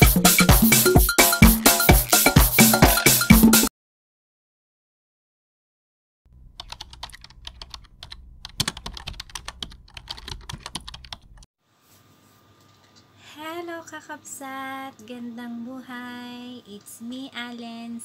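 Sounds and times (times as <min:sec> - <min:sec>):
computer keyboard typing: 0:06.6 - 0:11.5.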